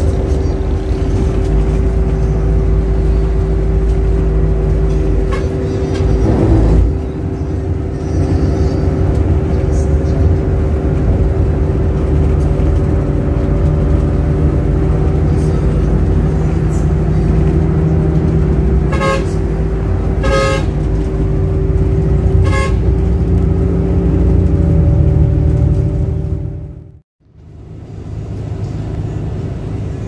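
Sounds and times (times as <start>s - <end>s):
bus engine and road drone: 0.0s - 30.0s
vehicle horn tooting: 5.2s - 7.0s, 18.8s - 20.9s, 22.4s - 23.1s.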